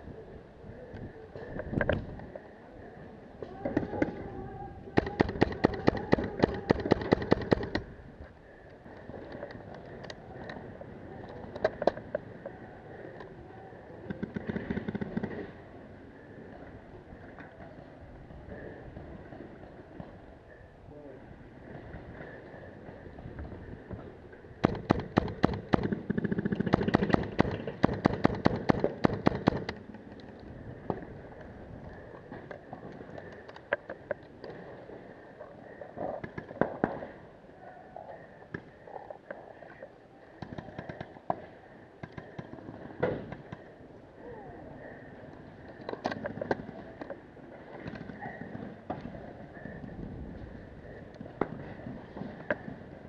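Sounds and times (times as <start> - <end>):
paintball markers firing: 5.0 - 7.9, 24.6 - 30.2.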